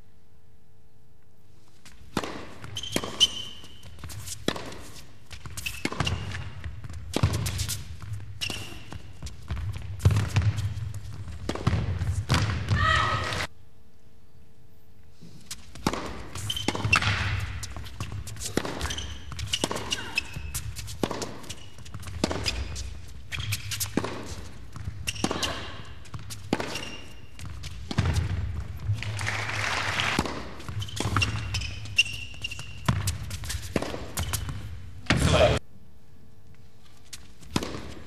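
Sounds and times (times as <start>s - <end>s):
tennis ball strikes and bounces: 2.0s - 12.7s, 15.6s - 29.2s, 30.2s - 35.3s, 37.4s - 38.0s.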